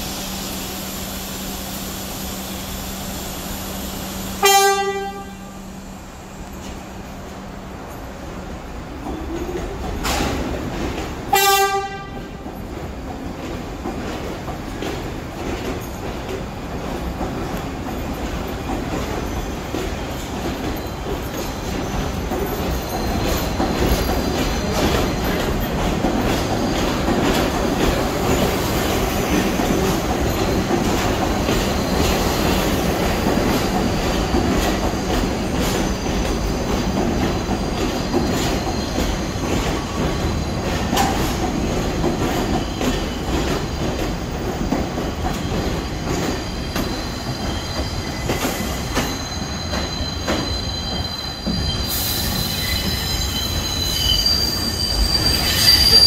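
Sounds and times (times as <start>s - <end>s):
subway train wheels clicking: 0.0s - 56.0s
train wheel squeal: 14.2s - 56.0s.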